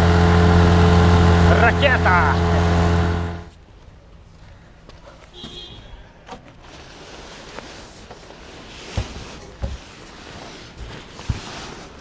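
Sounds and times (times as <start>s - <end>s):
dull thumps of bagged sails: 6.6s - 12.0s.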